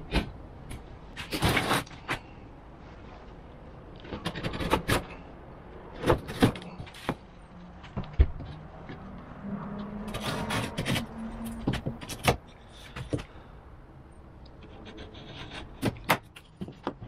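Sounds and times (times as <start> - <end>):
knife scoring plasterboard: 1.2 - 2.3, 4.0 - 5.2, 10.1 - 13.3, 14.6 - 17.0.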